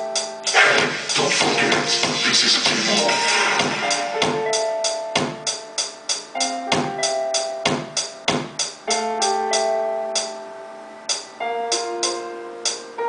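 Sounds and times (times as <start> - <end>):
drum machine beat: 0.0 - 10.3
held synth chords: 0.0 - 12.8.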